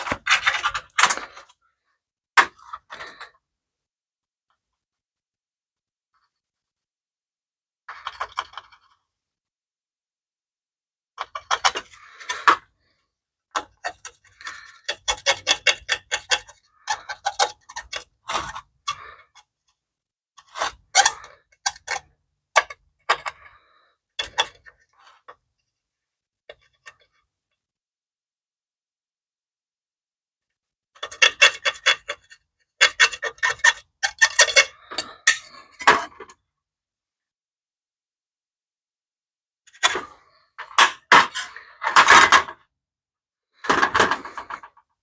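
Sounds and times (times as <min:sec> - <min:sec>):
hand tool scraping metal: 0:13.6 - 0:19.3, 0:31.0 - 0:36.2.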